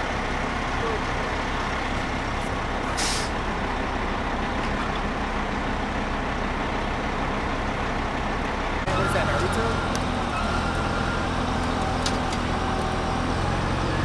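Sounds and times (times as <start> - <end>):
diesel engine running: 0.0 - 14.0
short hiss: 3.0 - 3.4.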